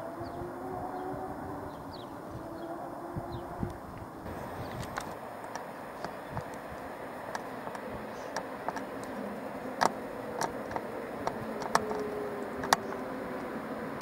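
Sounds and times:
background hiss: 0:00.1 - 0:14.0
tripod head clicking: 0:04.3 - 0:06.6.

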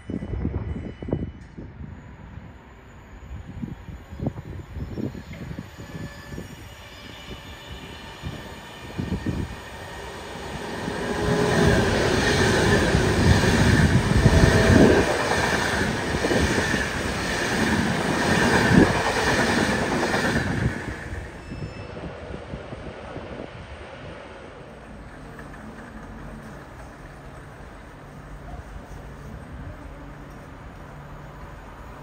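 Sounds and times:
train passing: 0:00.0 - 0:32.0
wheels rattling on rails: 0:08.2 - 0:21.6, 0:24.6 - 0:31.2.

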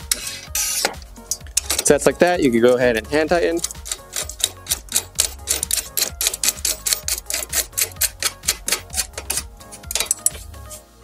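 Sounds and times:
clicky percussion beat: 0:00.1 - 0:02.2, 0:03.0 - 0:10.6
steady bass line: 0:01.0 - 0:05.5.

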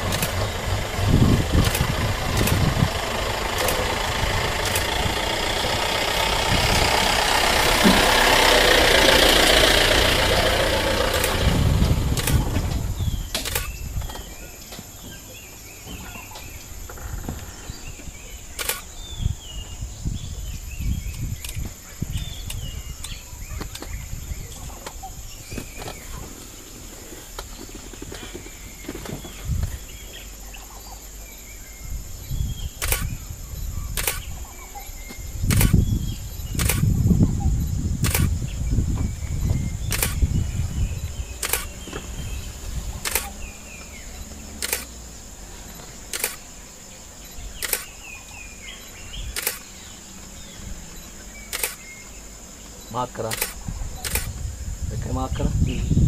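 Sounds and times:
sharp clicks: 0:00.0 - 0:02.8, 0:03.5 - 0:05.8, 0:11.1 - 0:11.5, 0:12.1 - 0:14.8, 0:18.5 - 0:18.9, 0:32.8 - 0:33.2, 0:33.9 - 0:34.3, 0:35.4 - 0:35.9, 0:36.5 - 0:36.9, 0:38.0 - 0:38.4, 0:39.8 - 0:40.3, 0:41.4 - 0:42.1, 0:43.0 - 0:43.9, 0:44.6 - 0:45.0, 0:46.1 - 0:46.5, 0:47.6 - 0:48.1, 0:49.3 - 0:49.8, 0:51.4 - 0:52.1, 0:53.2 - 0:54.4
birds chirping: 0:00.0 - 0:56.0
vehicle engine running: 0:00.0 - 0:56.0.

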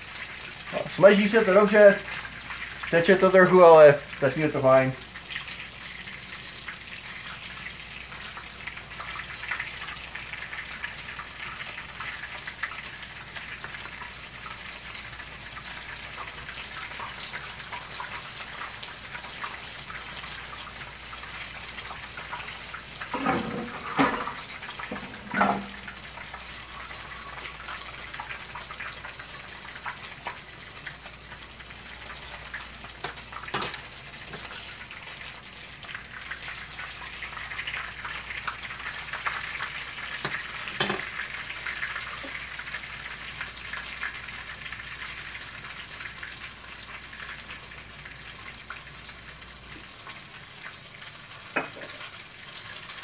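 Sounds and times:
cheese sizzling in hot oil: 0:00.0 - 0:53.0
pan clattering: 0:23.1 - 0:25.9.

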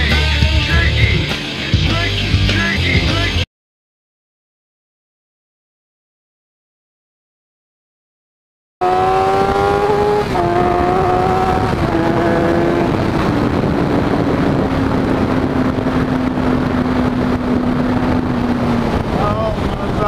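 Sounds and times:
motorcycle engine shifting up: 0:08.8 - 0:20.0.

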